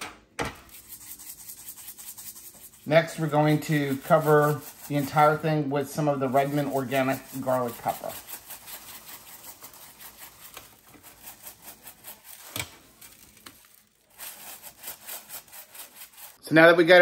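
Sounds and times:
seasoning granules pattering: 0.7s - 16.4s
hands handling meat: 7.6s - 15.7s.

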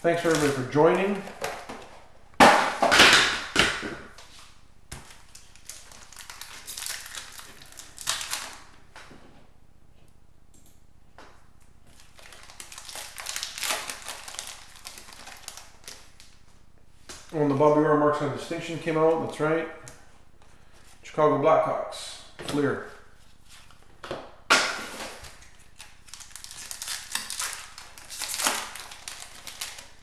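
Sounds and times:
card pack wrappers tearing: 0.1s - 1.5s, 5.0s - 8.7s, 11.9s - 16.4s, 24.8s - 30.0s.

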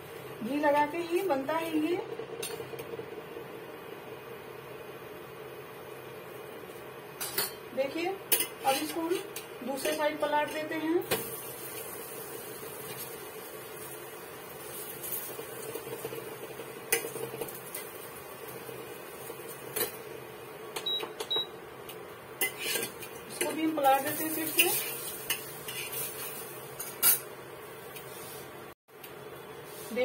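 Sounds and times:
induction cooktop humming: 0.0s - 30.0s
utensils clinking on pan and bowl: 7.2s - 7.6s, 8.3s - 11.2s, 22.4s - 27.3s.

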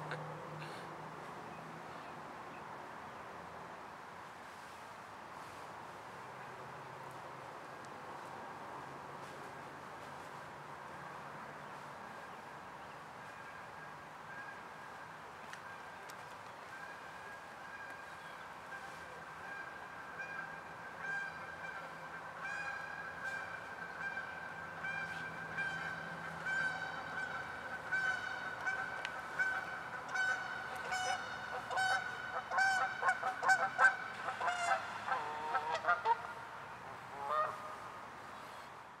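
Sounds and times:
geese honking: 17.8s - 37.8s.

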